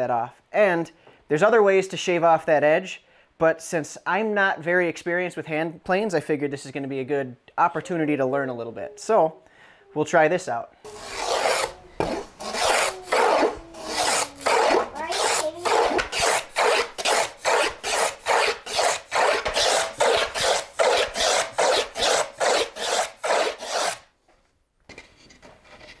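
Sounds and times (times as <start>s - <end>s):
block plane shaving wood: 10.9s - 24.0s.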